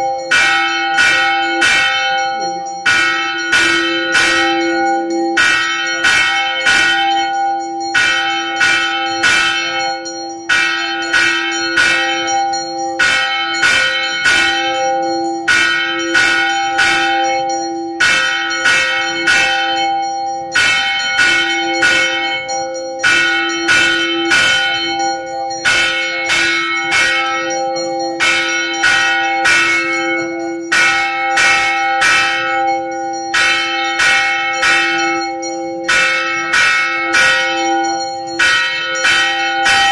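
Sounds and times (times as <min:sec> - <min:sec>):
temple bell ringing: 0:00.0 - 0:39.9.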